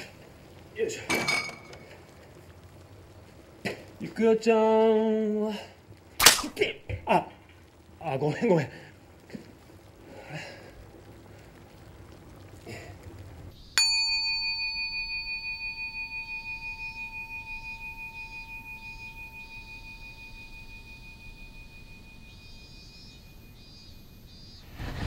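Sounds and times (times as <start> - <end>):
altar bell ringing: 13.8 - 22.4.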